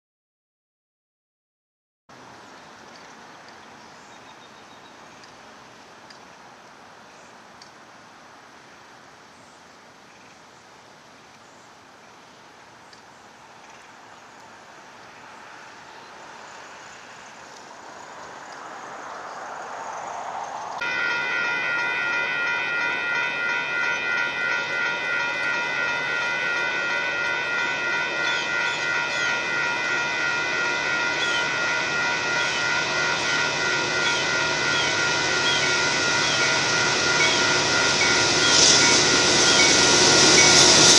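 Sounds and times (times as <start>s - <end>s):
train rumble: 11.8s - 40.9s
rushing noise: 15.2s - 23.4s, 24.4s - 40.9s
crossing warning bell ringing: 20.8s - 40.9s.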